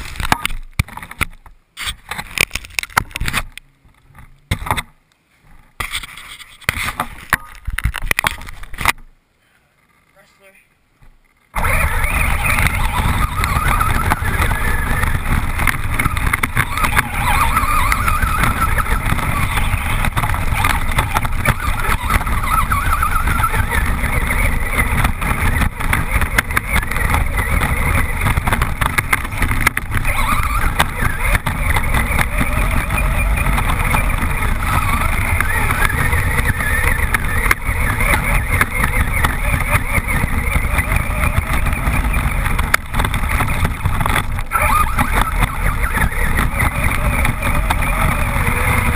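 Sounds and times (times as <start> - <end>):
steady rumble: 5.4 - 48.9
toy truck motor whine: 11.5 - 48.9
wind buffeting microphone: 11.5 - 48.9.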